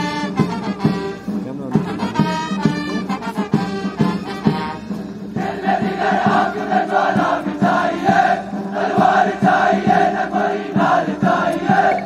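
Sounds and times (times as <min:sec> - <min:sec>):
drum beat: 0:00.0 - 0:12.0
parade band music: 0:00.0 - 0:12.0
crowd chanting: 0:05.4 - 0:12.0.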